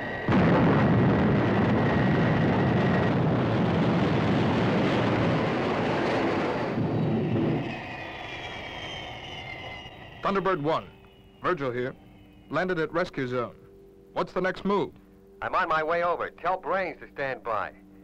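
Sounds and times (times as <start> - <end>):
loud jet rush: 0.0 - 10.6
engines winding down whine: 4.8 - 13.5.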